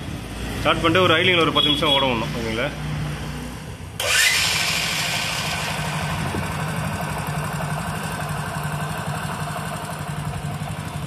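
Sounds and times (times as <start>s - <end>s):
motorcycle engine idling: 4.5s - 11.0s.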